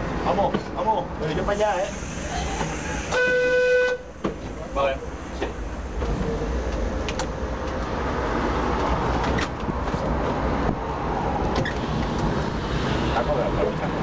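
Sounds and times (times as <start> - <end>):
tram rumbling on rails: 0.0 - 14.0.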